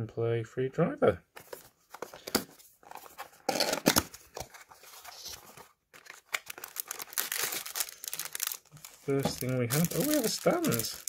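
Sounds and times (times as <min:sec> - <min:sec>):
plastic wrapping crinkling: 0:04.4 - 0:11.0.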